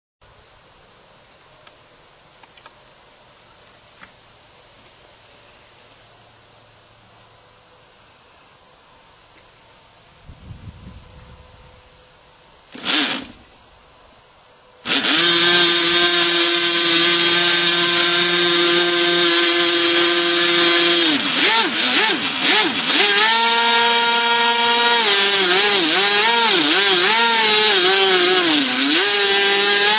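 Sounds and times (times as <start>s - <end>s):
model airplane engine running: 14.9s - 29.9s.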